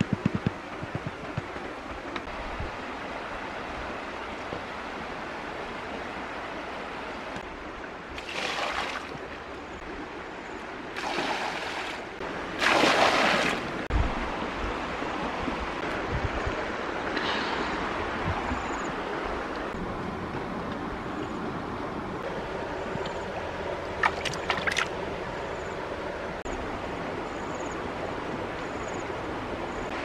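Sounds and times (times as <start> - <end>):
river water rushing: 1.5 - 15.7, 20.9 - 27.1
water splashing into pond: 8.1 - 9.3, 10.9 - 13.9, 23.9 - 25.0.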